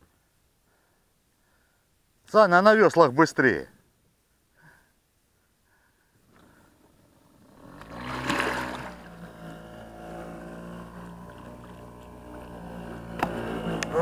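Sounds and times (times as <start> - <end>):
small boat motor running: 6.4 - 14.0.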